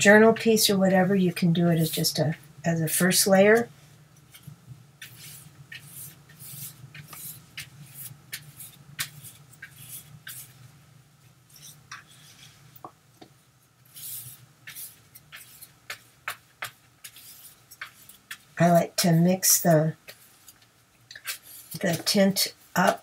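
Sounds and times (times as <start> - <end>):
brush scrubbing on paper: 4.3 - 10.6, 13.9 - 18.5, 20.1 - 23.0.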